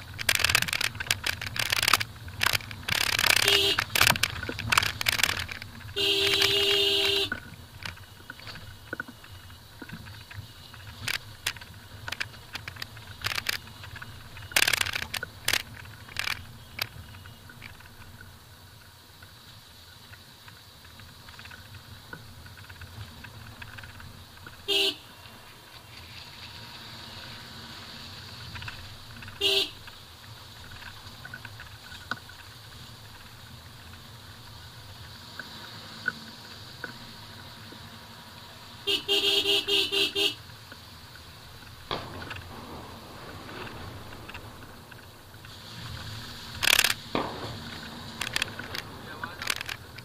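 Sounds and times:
car knocks and rattles: 0.0 - 18.2, 41.6 - 50.0
engine and tyres rumbling: 0.0 - 50.0
car horn: 3.4 - 3.9, 6.0 - 7.4, 24.6 - 25.2, 29.4 - 29.8, 38.8 - 40.4.

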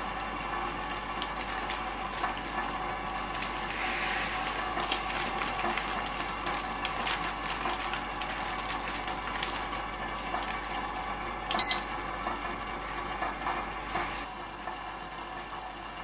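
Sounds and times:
gas burner hissing: 2.8 - 4.7
short high electronic beep: 11.6 - 11.9.

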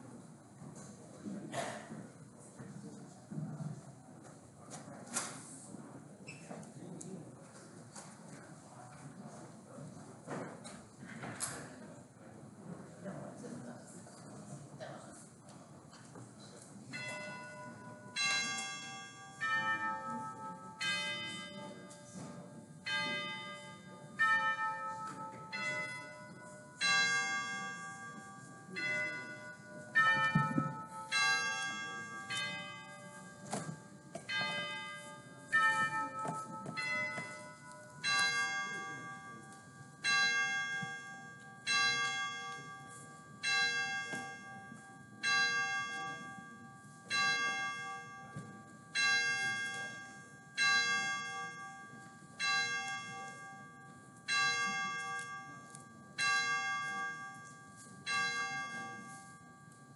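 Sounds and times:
church bells ringing: 16.9 - 59.9.

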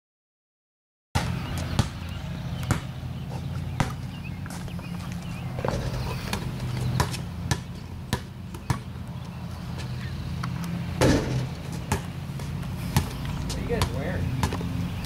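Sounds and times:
basketball bouncing on concrete: 1.2 - 9.0, 11.0 - 14.7.

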